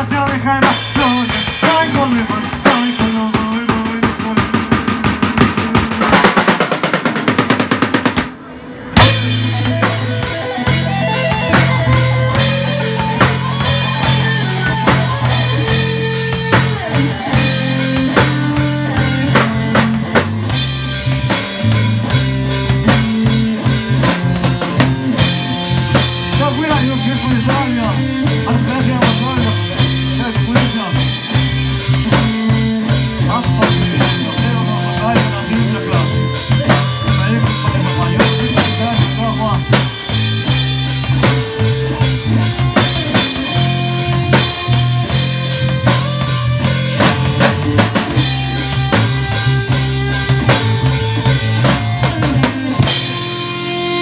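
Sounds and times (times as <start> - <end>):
person singing: 0.0 - 4.8, 26.4 - 39.8
rock band playing: 0.0 - 54.0
fast drum fill: 0.4 - 8.4, 9.0 - 53.5.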